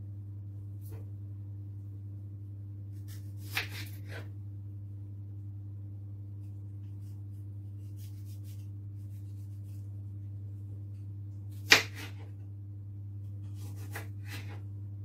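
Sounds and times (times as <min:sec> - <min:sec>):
steady low hum: 0:00.0 - 0:15.0
knife slicing tomato: 0:02.9 - 0:04.3, 0:07.8 - 0:09.9, 0:11.5 - 0:12.4, 0:13.4 - 0:14.6.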